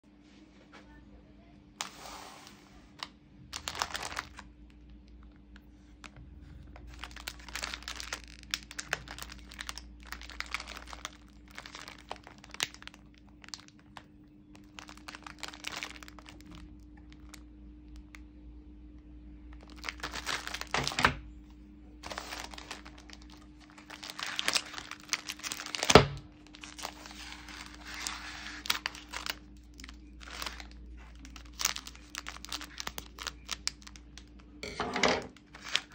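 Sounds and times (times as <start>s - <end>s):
plastic wrapper crinkling: 3.0s - 18.2s, 19.5s - 21.2s, 22.0s - 34.6s, 35.2s - 35.9s.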